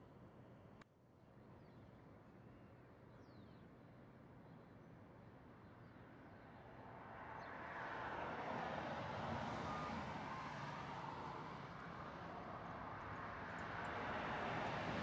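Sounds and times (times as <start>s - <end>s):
passing vehicle engine and tyres: 7.6s - 15.0s.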